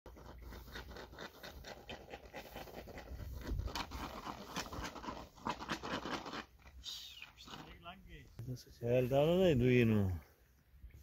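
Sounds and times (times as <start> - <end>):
wheat stalks rustling and crackling: 0.1 - 8.0.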